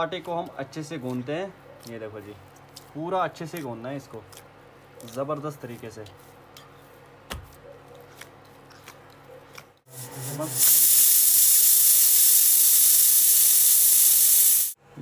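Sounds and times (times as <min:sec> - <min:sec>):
loud steady hiss: 0:09.9 - 0:14.8.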